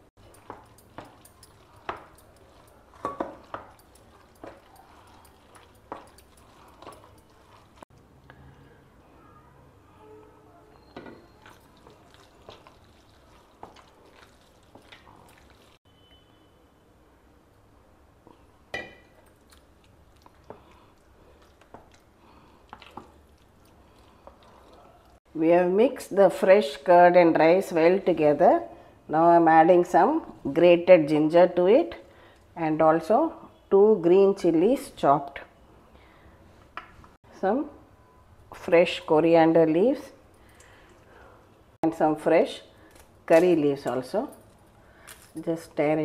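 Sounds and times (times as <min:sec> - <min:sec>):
soft wet stirring: 0:00.1 - 0:08.8, 0:11.0 - 0:15.9, 0:18.2 - 0:25.2
wooden spoon knocking steel bowl: 0:03.0 - 0:04.6.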